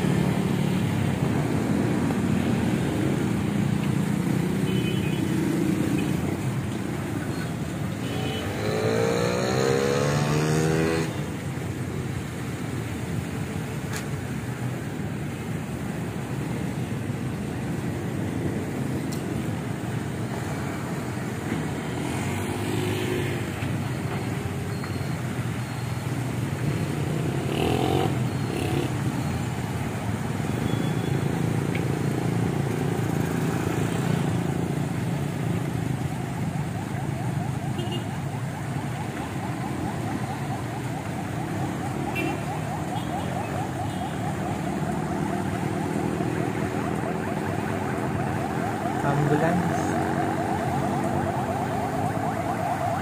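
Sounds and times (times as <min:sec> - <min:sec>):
motorcycles driving past: 0:08.2 - 0:11.4, 0:26.8 - 0:29.2, 0:39.3 - 0:53.0.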